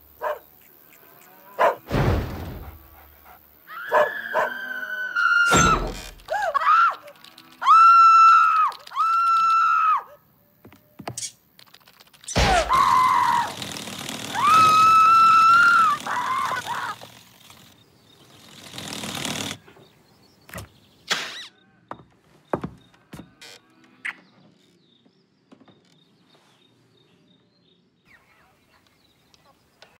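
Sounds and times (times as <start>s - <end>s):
loud crash: 1.9s - 2.7s
woman screaming: 3.7s - 5.7s, 6.3s - 10.2s, 12.4s - 13.6s, 14.3s - 17.0s.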